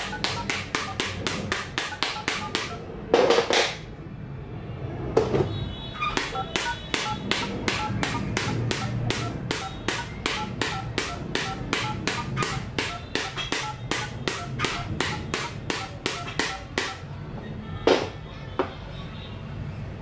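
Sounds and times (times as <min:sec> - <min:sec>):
toy hammer tapping touchscreen: 0:00.0 - 0:02.9, 0:06.1 - 0:17.0
short key beeps: 0:06.0 - 0:07.2.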